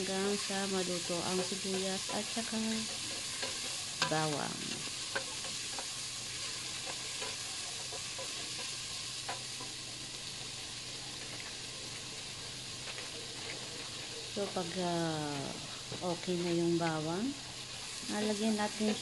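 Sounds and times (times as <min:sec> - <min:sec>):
onions sizzling in oil: 0:00.0 - 0:19.0
wooden spatula stirring in pot: 0:00.1 - 0:10.0, 0:11.2 - 0:19.0.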